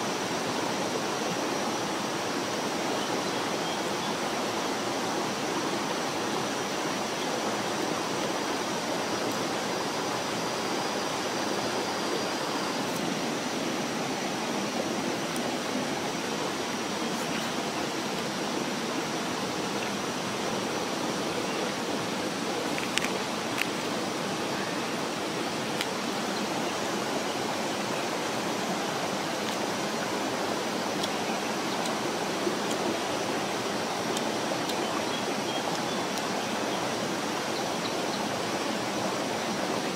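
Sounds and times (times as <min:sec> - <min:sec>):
flowing stream: 0:00.0 - 0:39.9.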